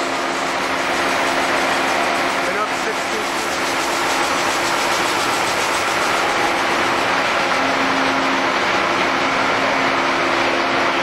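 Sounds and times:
coolant spraying hiss: 0.0s - 8.6s
lathe machine hum: 0.0s - 11.0s.

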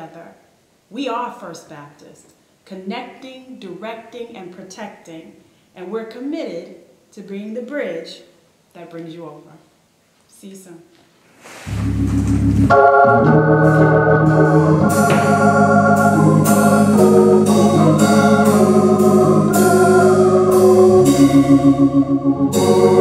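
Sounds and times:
organ music: 11.7s - 23.0s
steady beat: 11.7s - 23.0s.

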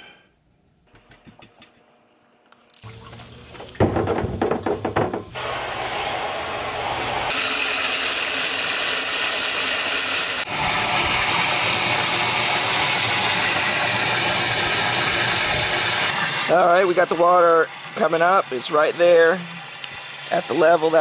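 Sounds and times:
outboard motor clattering on barrel: 2.8s - 5.4s
hose nozzle spraying water: 5.3s - 21.0s.

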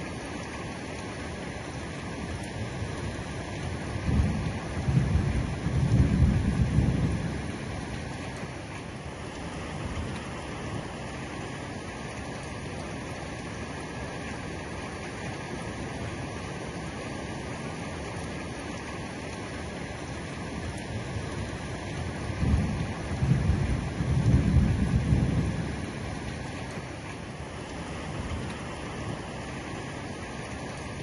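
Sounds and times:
heavy rain: 0.0s - 31.0s
thunder rumble: 3.8s - 8.1s, 21.0s - 26.8s.

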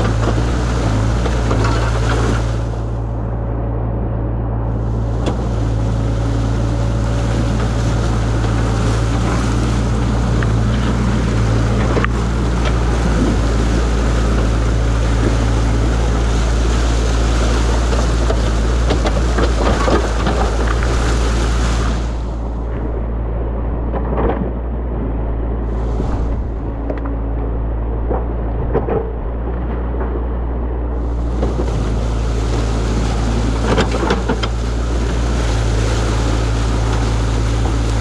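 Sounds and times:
excavator diesel engine: 0.0s - 38.0s
water rushing: 0.0s - 38.0s.

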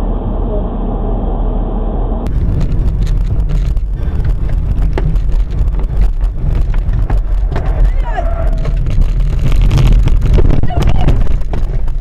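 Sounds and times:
road and engine rumble: 0.0s - 12.0s
clicks and knocks: 2.5s - 12.0s.

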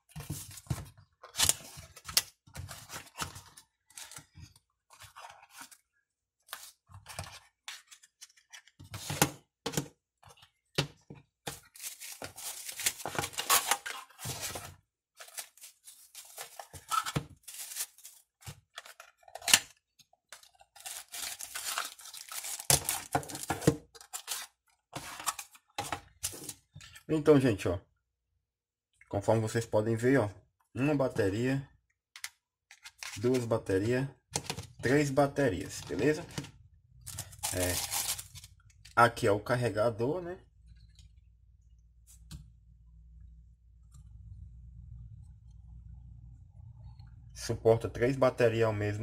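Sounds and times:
paper and plastic bags rustling: 11.6s - 19.0s, 20.7s - 25.5s, 37.1s - 38.5s.

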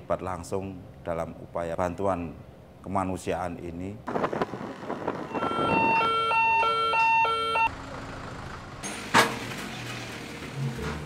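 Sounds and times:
electronic two-tone alarm: 5.3s - 7.7s.

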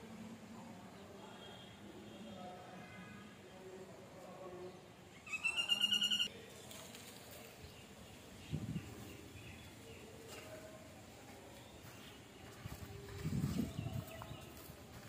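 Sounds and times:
bird trilling call: 5.3s - 6.3s.

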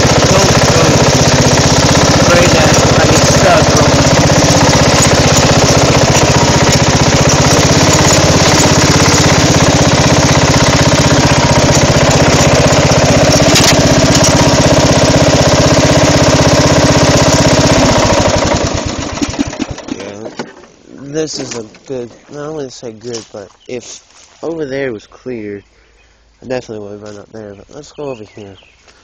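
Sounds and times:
lawn mower engine running: 0.0s - 23.3s.

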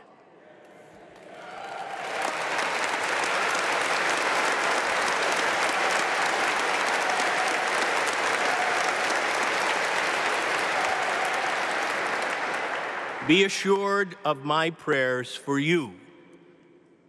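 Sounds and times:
congregation applauding: 1.0s - 14.1s.

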